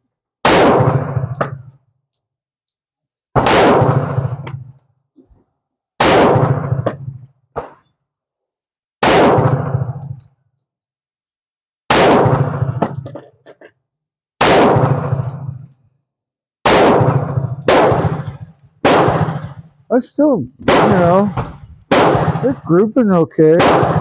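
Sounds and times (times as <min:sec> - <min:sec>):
pistol shots: 0:00.4 - 0:01.8, 0:03.4 - 0:04.7, 0:06.0 - 0:07.9, 0:09.0 - 0:10.2, 0:11.9 - 0:13.3, 0:14.4 - 0:15.7, 0:16.6 - 0:19.8, 0:20.6 - 0:22.9, 0:23.5 - 0:24.0.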